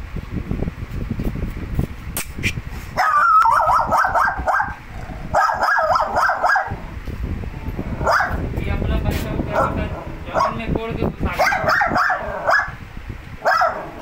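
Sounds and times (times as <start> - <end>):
dog yelping: 3.0 - 6.8, 8.0 - 8.4, 9.5 - 10.6, 11.4 - 12.8, 13.4 - 14.0.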